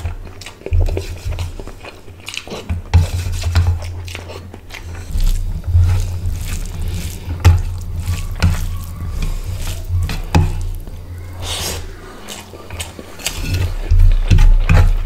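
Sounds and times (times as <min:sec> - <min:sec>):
fingers squishing rice and curry: 0:00.0 - 0:15.0
person chewing: 0:00.0 - 0:15.0
steady low hum: 0:03.0 - 0:15.0.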